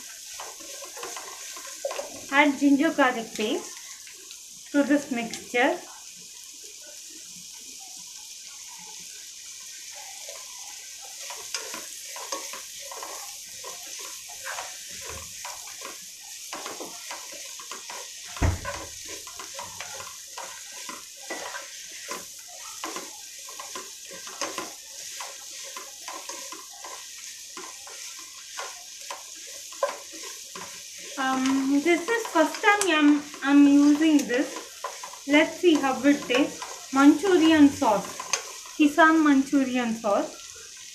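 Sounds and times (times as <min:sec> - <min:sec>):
spatula scraping and stirring: 0:00.0 - 0:06.0, 0:07.6 - 0:40.9
onions sizzling in oil: 0:00.0 - 0:40.9
thump against pot: 0:18.4 - 0:19.0.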